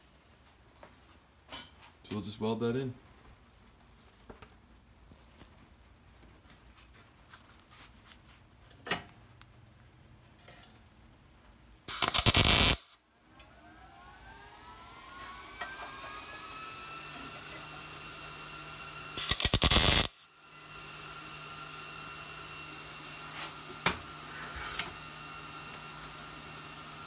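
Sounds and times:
steady hum: 0:11.9 - 0:13.0, 0:19.2 - 0:20.2
welding arc noise: 0:11.9 - 0:13.0, 0:16.5 - 0:20.3
machine whine: 0:11.9 - 0:21.4.

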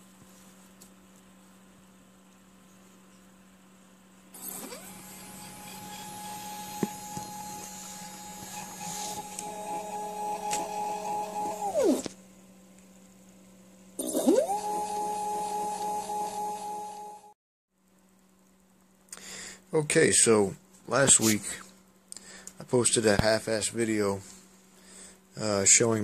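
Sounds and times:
stepper motor whining: 0:04.4 - 0:12.1, 0:14.0 - 0:17.3.

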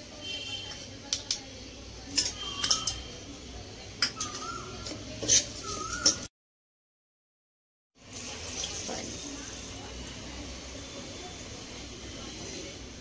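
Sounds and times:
spoon clinking and scraping metal pot: 0:02.1 - 0:03.2, 0:04.0 - 0:06.3.

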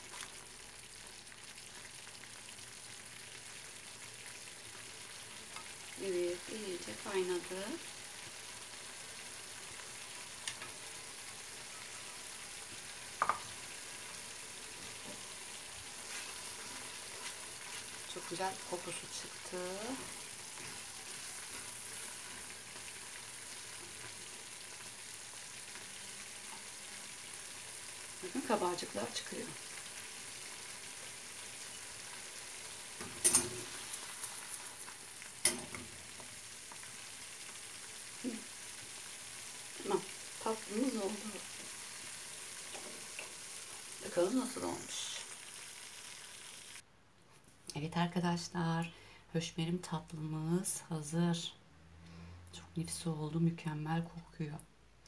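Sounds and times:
mixture sizzling in frying pan: 0:00.0 - 0:46.8
spatula scraping and stirring: 0:15.9 - 0:24.2
cookware clinking on stove: 0:33.0 - 0:33.7.

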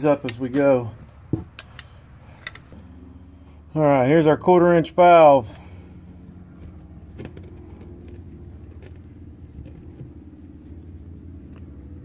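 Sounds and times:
low background hum: 0:00.0 - 0:12.0
metallic clicks of pipe fittings: 0:01.5 - 0:02.8.

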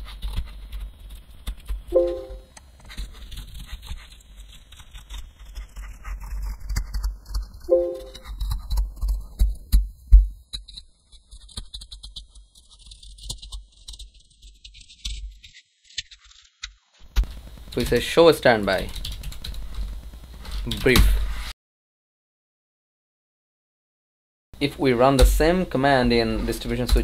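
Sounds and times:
keyboard typing: 0:01.9 - 0:02.4, 0:07.7 - 0:08.3.

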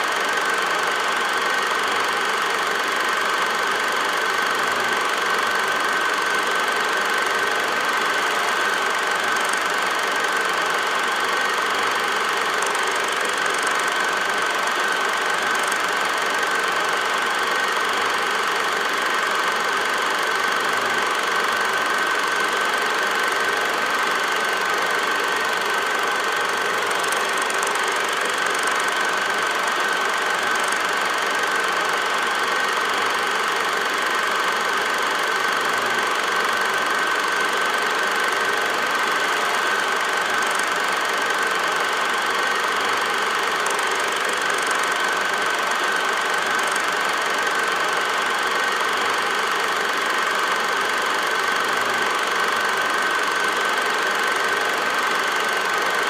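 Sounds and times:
machine running with high hum: 0:00.0 - 0:56.0.

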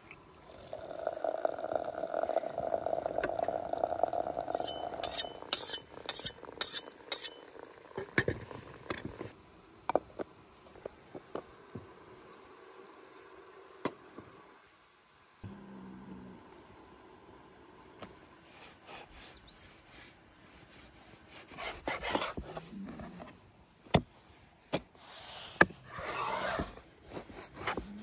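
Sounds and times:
hot water pouring into teapot: 0:00.3 - 0:09.4
glass clinks: 0:04.6 - 0:07.5.

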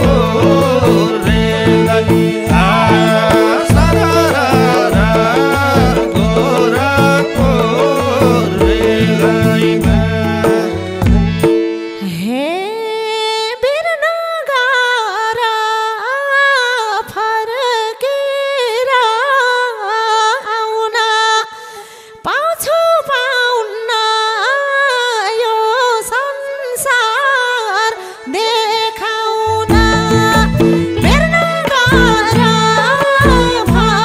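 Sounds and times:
person singing unaccompanied folk melody: 0:00.0 - 0:14.8, 0:27.2 - 0:34.0.

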